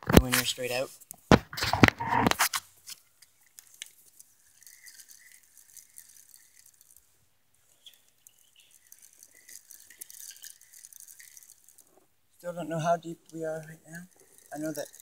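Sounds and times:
light ticking hiss: 0:00.1 - 0:01.4, 0:02.2 - 0:15.0
faint bird chirps: 0:07.6 - 0:11.8.

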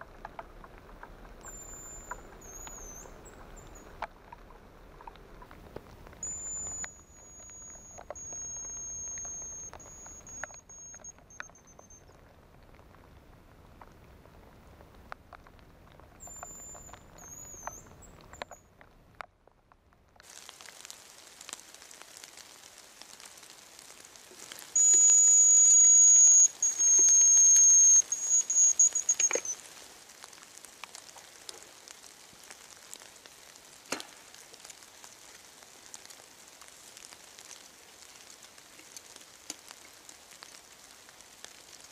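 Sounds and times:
water drips: 0:00.0 - 0:18.9, 0:20.2 - 0:41.9
light rain patter: 0:00.0 - 0:41.9
high decoy whistle with trill: 0:01.4 - 0:03.2, 0:06.2 - 0:12.0, 0:24.8 - 0:29.6.

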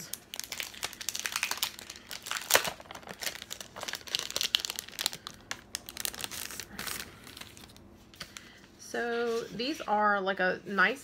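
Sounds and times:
plastic wrapper crinkling: 0:00.0 - 0:08.5.

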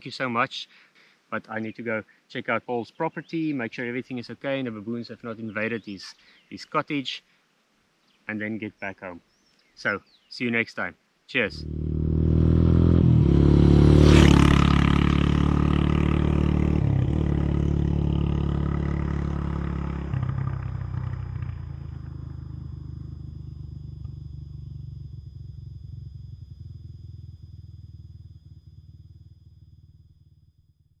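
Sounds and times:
vehicle engine pulling away: 0:11.5 - 0:30.8.

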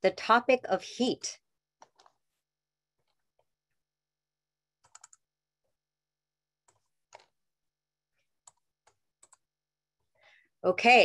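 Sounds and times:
keyboard and mouse clicks: 0:01.8 - 0:02.2, 0:04.8 - 0:05.3, 0:06.6 - 0:07.4, 0:08.4 - 0:09.5.

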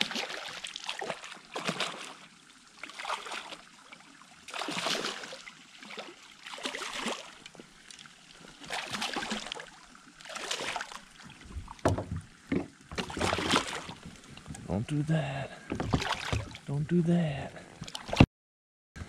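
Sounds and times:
fish thrashing and splashing: 0:00.0 - 0:02.2, 0:02.8 - 0:03.6, 0:04.5 - 0:14.5, 0:15.7 - 0:16.6
low thumps against kayak: 0:11.4 - 0:14.6, 0:15.7 - 0:16.6.

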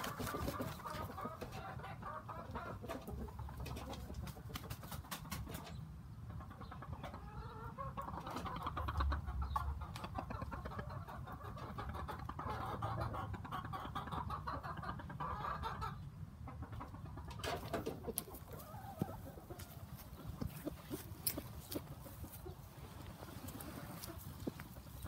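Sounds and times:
chickens clucking: 0:00.0 - 0:25.0
dry twigs and leaves rustling: 0:17.7 - 0:25.0.

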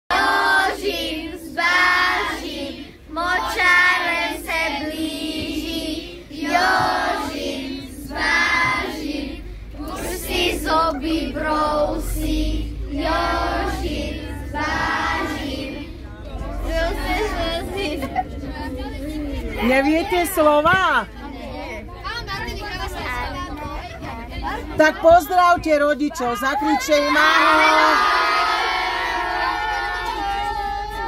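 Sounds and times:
children singing: 0:00.1 - 0:19.6, 0:26.8 - 0:31.0
bus rumble: 0:00.1 - 0:31.0.

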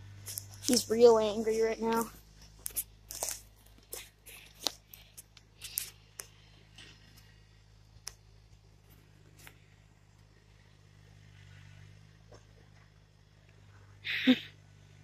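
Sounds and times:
footsteps crunching on dry leaves: 0:01.5 - 0:05.2.

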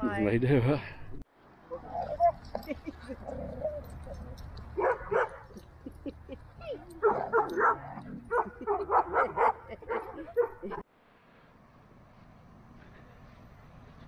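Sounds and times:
dogs barking and yipping: 0:01.7 - 0:10.8.

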